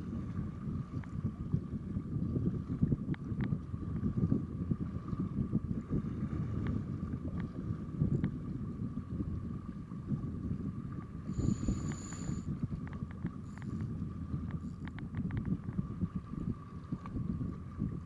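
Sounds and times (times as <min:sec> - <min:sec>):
wind buffeting microphone: 0:00.0 - 0:18.0
brief high whine: 0:11.4 - 0:12.5.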